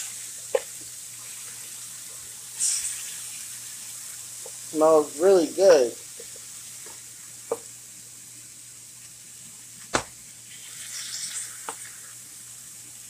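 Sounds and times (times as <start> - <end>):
chicken sizzling in a skillet: 0.0 - 13.0.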